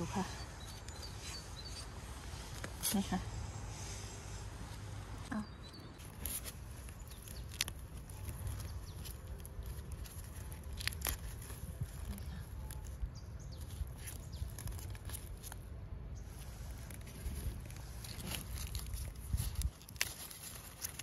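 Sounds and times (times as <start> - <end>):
gloved hand rustling mushrooms: 5.6 - 21.0.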